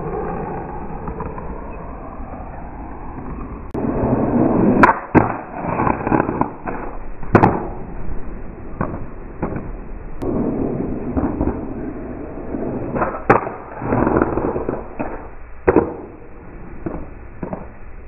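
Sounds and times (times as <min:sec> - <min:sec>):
skateboard wheels rolling on concrete: 0:00.0 - 0:18.0
skateboard clacks: 0:03.2 - 0:07.9, 0:08.7 - 0:18.0.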